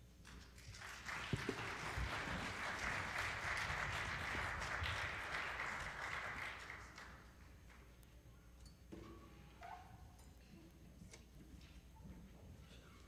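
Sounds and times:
congregation applauding: 0:00.3 - 0:07.9.

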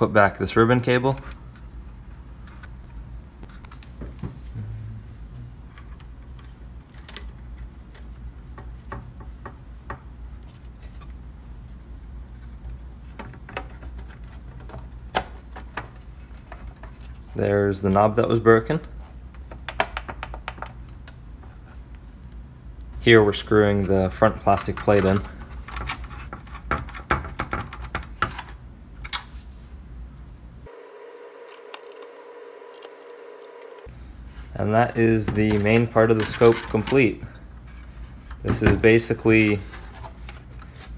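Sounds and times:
low steady hum: 0:00.0 - 0:27.0, 0:27.6 - 0:40.9
screwdriver and screws clicking: 0:31.5 - 0:33.8.

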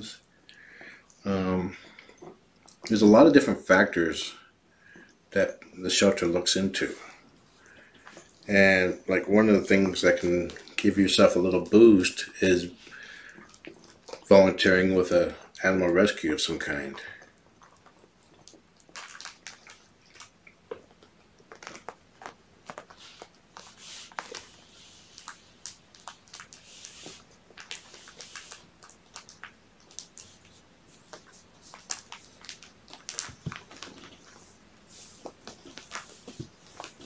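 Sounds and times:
kittens crunching on a blanket: 0:16.7 - 0:37.0.

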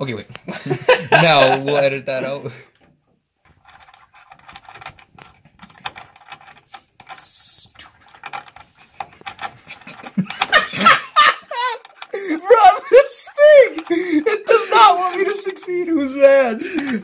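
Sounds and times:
small screw clicking and tapping: 0:03.6 - 0:10.8, 0:11.6 - 0:12.4.

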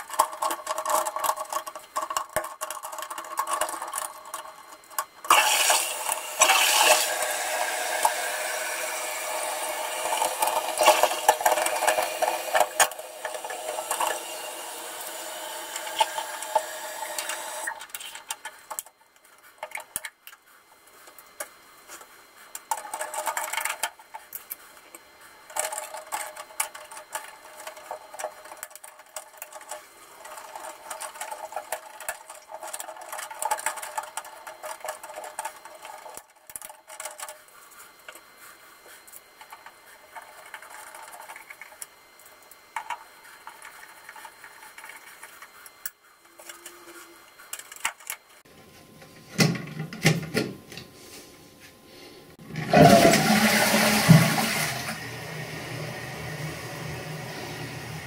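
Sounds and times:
plastic parts clicking and clattering: 0:00.0 - 0:07.1, 0:10.0 - 0:14.2, 0:22.5 - 0:37.5, 0:39.4 - 0:48.4.

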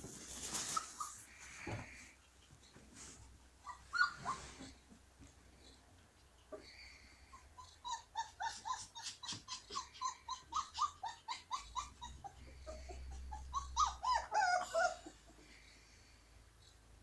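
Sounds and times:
puppies squealing: 0:03.6 - 0:04.7, 0:06.5 - 0:15.4
puppies yipping and whining: 0:03.6 - 0:04.8, 0:06.5 - 0:15.8.

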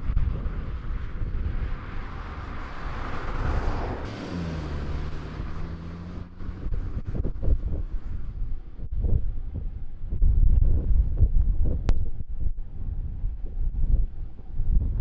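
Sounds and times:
engine hum: 0:00.0 - 0:15.0
wind noise on microphone: 0:00.0 - 0:15.0
car driving past: 0:01.6 - 0:08.2.

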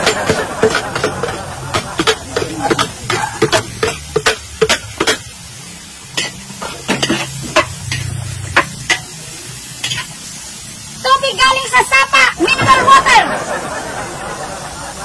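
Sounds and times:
metal spatula scraping a wok: 0:00.0 - 0:10.3
food sizzling: 0:00.0 - 0:15.0.

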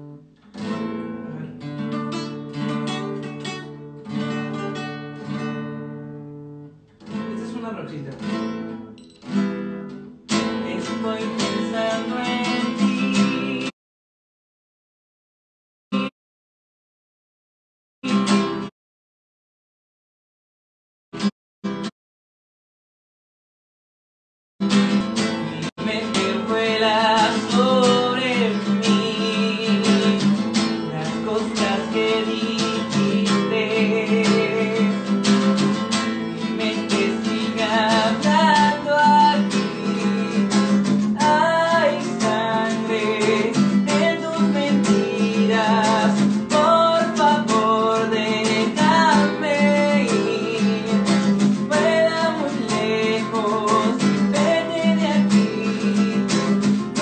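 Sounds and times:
acoustic guitar strumming: 0:00.0 - 0:13.7, 0:18.0 - 0:18.7, 0:21.2 - 0:21.9, 0:24.6 - 0:57.0
man singing: 0:01.2 - 0:01.7, 0:10.4 - 0:13.8, 0:15.9 - 0:16.1, 0:25.3 - 0:57.0.

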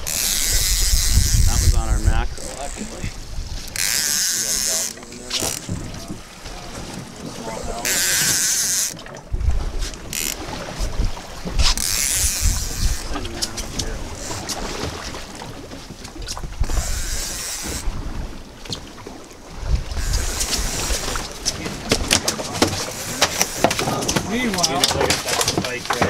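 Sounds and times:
wind rumbling on microphone: 0:00.0 - 0:26.0.

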